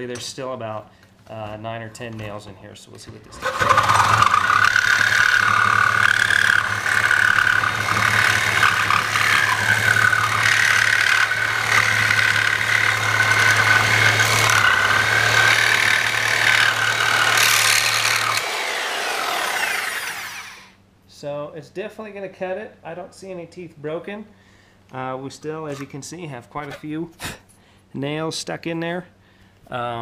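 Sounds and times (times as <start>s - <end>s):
reciprocating saw cutting wood: 3.4s - 20.7s
saw motor winding down: 3.4s - 20.8s.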